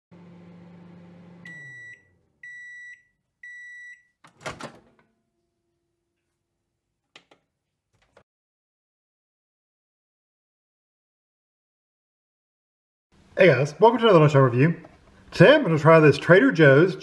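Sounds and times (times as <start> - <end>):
microwave oven humming: 0.1 - 2.8
microwave beeps: 1.2 - 4.2.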